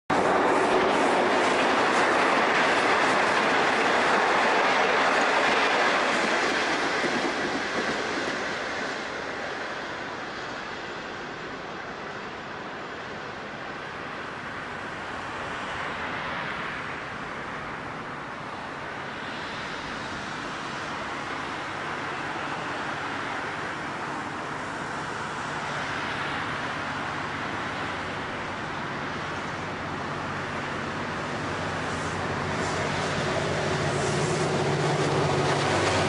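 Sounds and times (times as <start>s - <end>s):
rushing rail and traffic noise: 0.1s - 36.0s
diesel locomotive droning: 19.8s - 36.0s.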